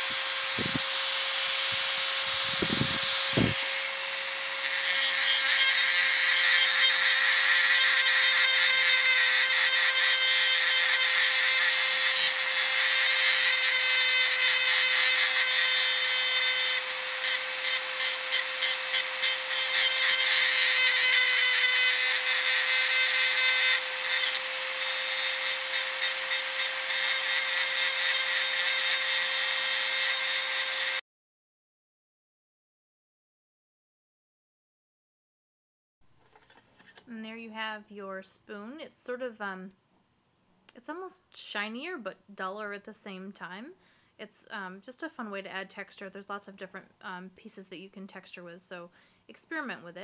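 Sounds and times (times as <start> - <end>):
rotary tool whine: 0.0 - 31.0
grinding stone on metal spoon: 1.8 - 31.0.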